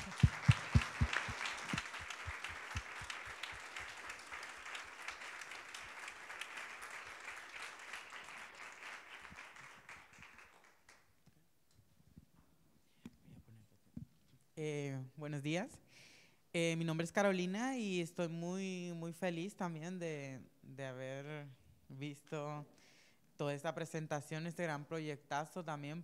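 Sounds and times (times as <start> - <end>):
audience applauding: 0.0 - 11.1
loud close claps: 0.0 - 11.2.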